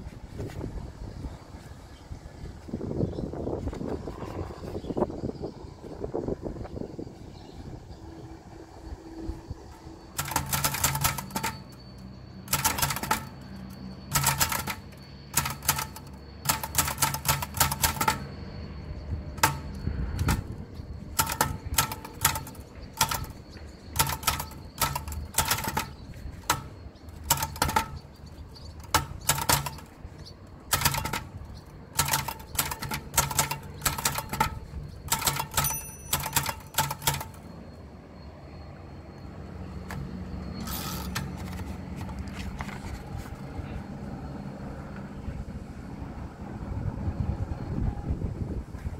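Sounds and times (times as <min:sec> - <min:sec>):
typewriter typebars clacking: 0:10.2 - 0:11.8, 0:12.4 - 0:18.4, 0:19.4 - 0:30.0, 0:30.7 - 0:37.5, 0:40.6 - 0:42.2.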